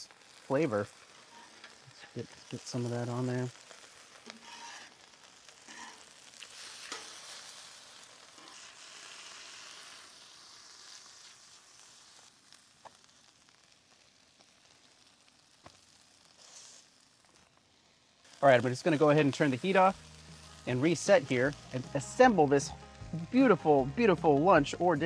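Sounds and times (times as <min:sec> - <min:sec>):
oil sizzling on griddle: 0:00.0 - 0:24.9.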